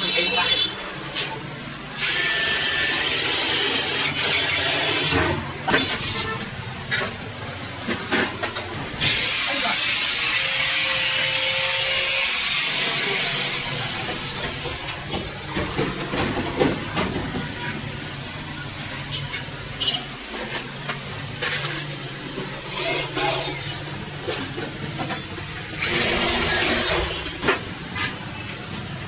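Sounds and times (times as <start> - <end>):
electric drill driving screws: 2.0 - 5.2, 25.8 - 27.2.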